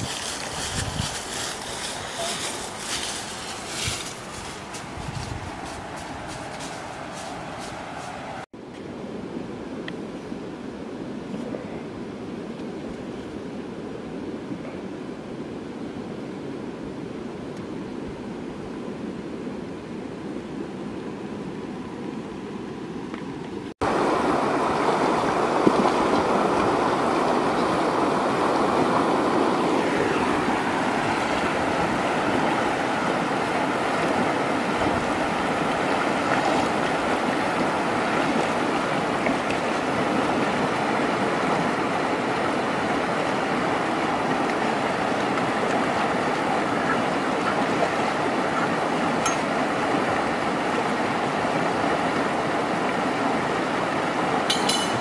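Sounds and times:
stream rushing over rocks: 0.0s - 8.5s, 23.8s - 55.0s.

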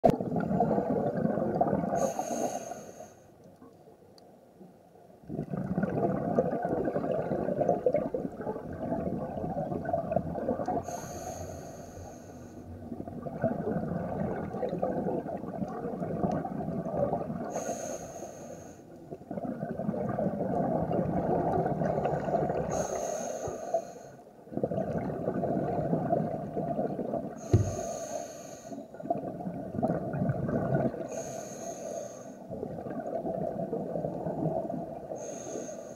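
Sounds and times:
exhaled bubbles rumbling: 0.0s - 2.2s, 5.2s - 11.3s, 12.7s - 17.6s, 19.0s - 22.9s, 24.4s - 28.0s, 28.9s - 31.2s, 32.5s - 35.4s
regulator inhale hiss: 2.0s - 3.4s, 10.8s - 12.7s, 17.5s - 18.9s, 22.7s - 24.3s, 27.4s - 28.9s, 31.1s - 32.5s, 35.1s - 35.9s.

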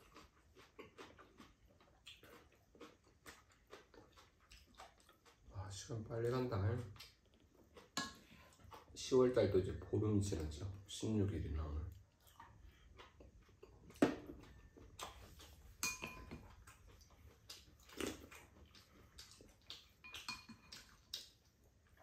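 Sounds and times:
quiet chewing: 0.0s - 11.0s, 11.7s - 22.0s
utensils clinking against bowls: 15.8s - 16.4s, 20.0s - 20.9s.

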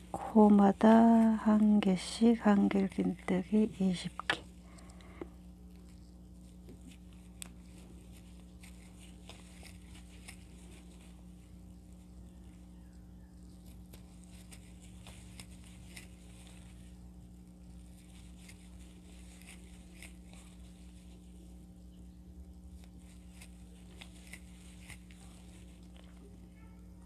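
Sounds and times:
crochet hook ticks and yarn rustles: 0.0s - 4.5s
steady low hum: 0.0s - 27.0s.

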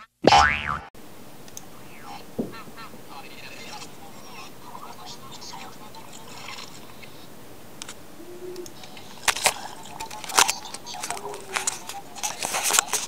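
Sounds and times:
low steady hiss: 1.0s - 13.0s
sharp clicks and scrapes: 8.6s - 13.0s.

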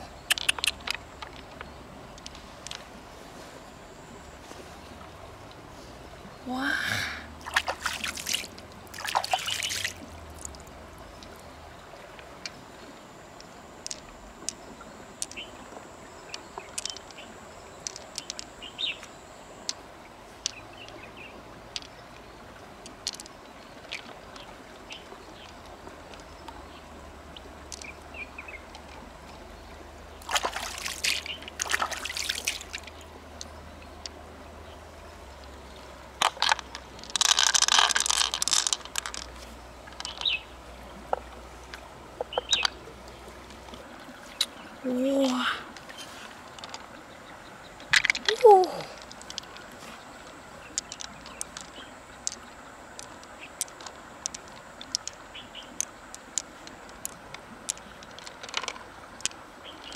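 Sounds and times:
small clicks of pearls and shell: 0.2s - 2.9s, 13.4s - 19.8s, 21.7s - 22.1s, 22.8s - 26.8s, 27.6s - 29.4s, 30.2s - 34.2s, 36.2s - 40.4s, 41.1s - 44.5s, 45.2s - 47.0s, 47.8s - 59.9s
water sloshing: 7.3s - 59.9s.

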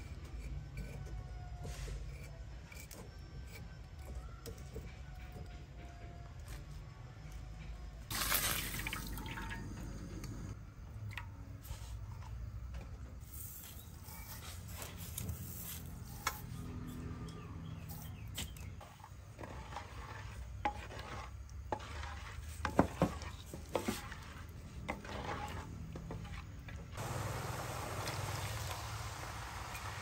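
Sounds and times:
food sizzling: 8.1s - 9.7s, 27.0s - 30.0s
utensil scraping in a pot: 11.6s - 27.0s.

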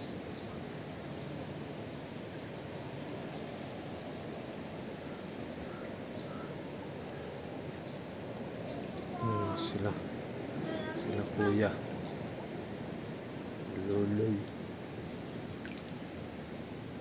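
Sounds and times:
high-pitched insect buzz: 9.1s - 10.0s, 10.6s - 11.8s.

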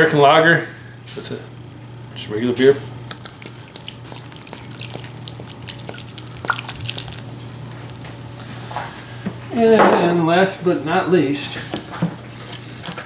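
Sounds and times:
beer pouring and fizzing: 3.1s - 8.6s.

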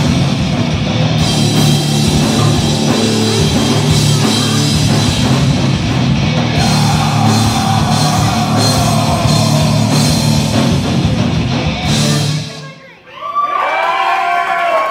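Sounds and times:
electric guitar: 0.0s - 12.6s
bass guitar: 0.0s - 12.8s
drum kit: 0.0s - 12.8s.

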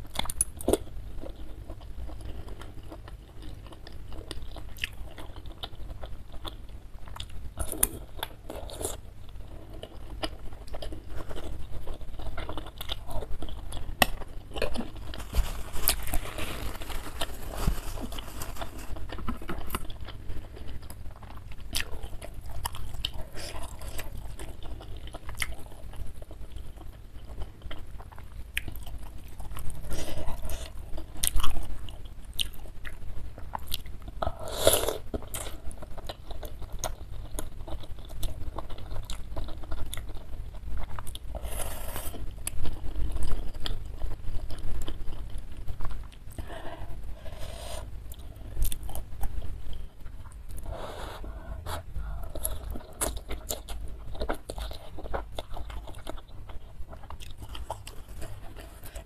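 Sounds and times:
wet chewing and mouth clicks: 0.1s - 9.0s.

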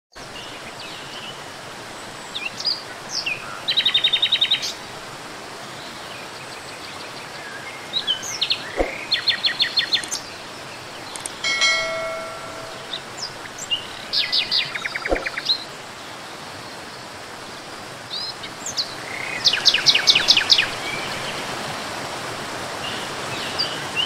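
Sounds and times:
bright chime: 11.4s - 13.2s.

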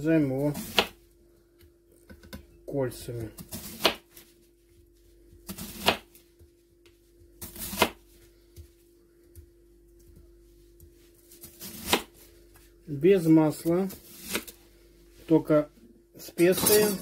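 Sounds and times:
faint steady hum: 0.0s - 17.0s
knife slicing onion: 0.4s - 1.0s, 3.1s - 4.2s, 5.3s - 6.2s, 7.4s - 8.2s, 11.2s - 12.2s, 13.9s - 14.6s.

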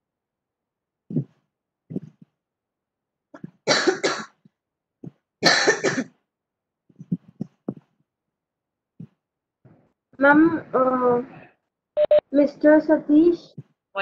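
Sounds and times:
person coughing: 3.6s - 4.4s, 5.4s - 6.1s.

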